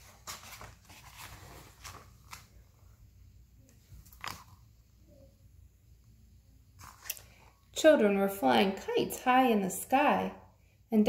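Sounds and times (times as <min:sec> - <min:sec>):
paper pages rustling: 0:00.0 - 0:02.6, 0:03.9 - 0:04.6, 0:06.8 - 0:07.3.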